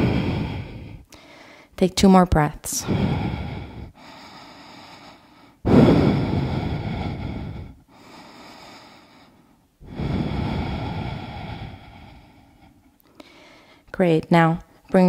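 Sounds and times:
quiet breathing: 0.0 - 1.8, 2.7 - 15.0
woman exhaling deeply: 9.8 - 13.6.

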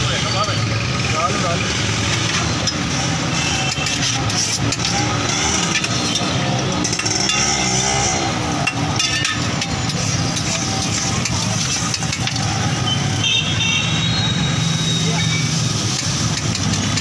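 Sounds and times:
metal spatula scraping on griddle: 2.2 - 12.6
water hissing on hot plate: 14.6 - 17.0.

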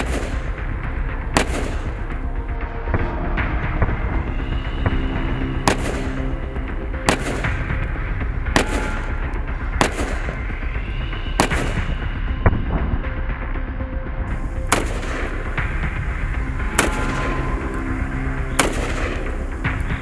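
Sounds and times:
background music with held notes: 0.0 - 20.0
rifle single shots echoing: 1.4 - 2.1, 7.0 - 7.8, 8.6 - 10.4, 14.6 - 19.6.

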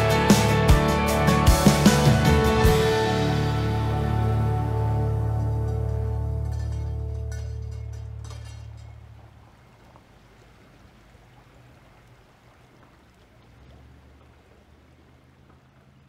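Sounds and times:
low background music: 0.0 - 8.8
low hum: 1.8 - 16.0.

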